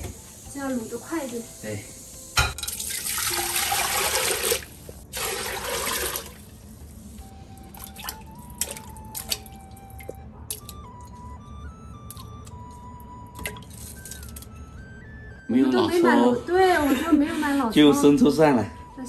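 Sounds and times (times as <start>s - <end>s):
soft background music: 0.0s - 19.0s
water pouring into a pot: 2.6s - 6.6s
short splashes and taps: 7.8s - 11.1s, 13.4s - 14.5s.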